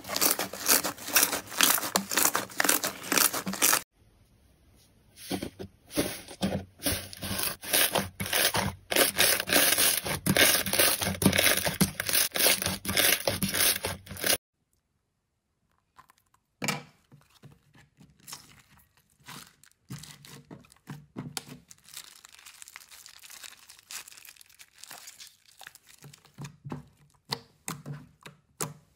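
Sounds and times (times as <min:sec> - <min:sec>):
slime crackling and tearing: 0:00.0 - 0:03.8, 0:21.6 - 0:26.5
slime squelching in plastic bag: 0:00.0 - 0:03.8, 0:05.9 - 0:14.4, 0:18.1 - 0:27.3.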